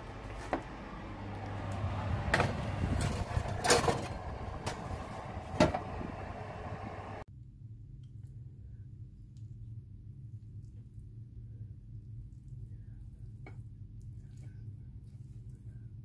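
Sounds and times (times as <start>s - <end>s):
low hum: 0.0s - 7.3s
metal tray scraping and clanking: 2.3s - 5.9s.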